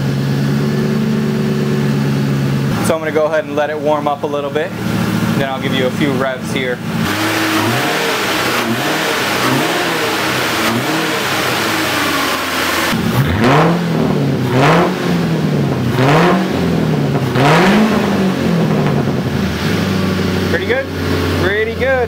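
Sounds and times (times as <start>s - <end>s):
car engine revving: 0.0s - 22.0s
sharp loud engine rev blips: 4.7s - 21.7s.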